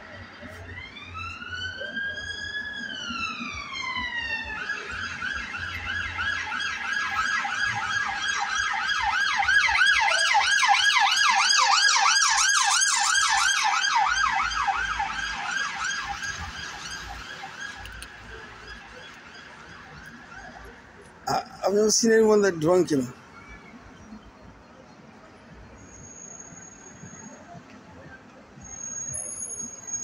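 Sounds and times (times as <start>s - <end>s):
police car siren: 0.0s - 23.6s.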